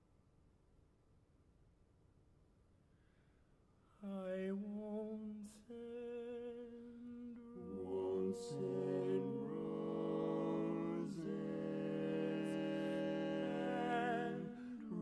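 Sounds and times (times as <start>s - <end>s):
male quartet singing a cappella: 4.1s - 15.0s.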